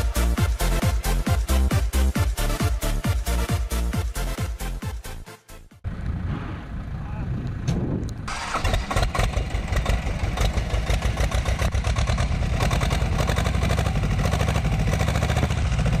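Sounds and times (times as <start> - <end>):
diesel engine idling: 5.9 - 16.0.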